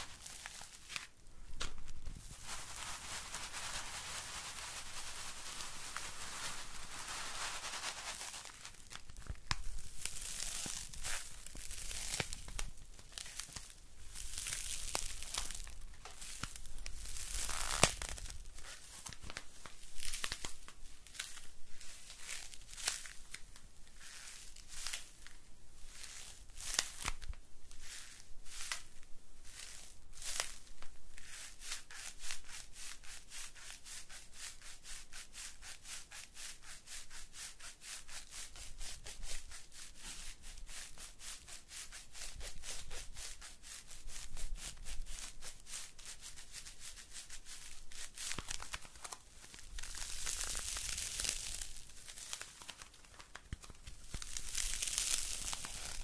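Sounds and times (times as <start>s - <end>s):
paper rustling and crinkling: 0.0s - 23.4s, 47.5s - 56.0s.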